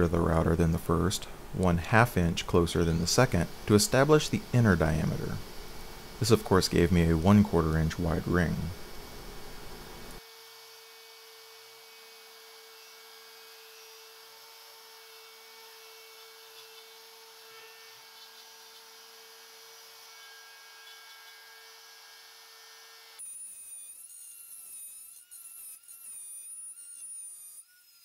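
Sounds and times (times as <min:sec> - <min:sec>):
palm router whining: 0:00.0 - 0:10.2.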